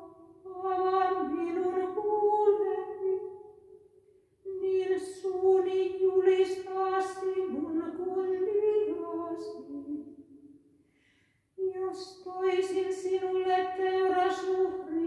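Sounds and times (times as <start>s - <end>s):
woman chanting unaccompanied: 11.6s - 15.0s.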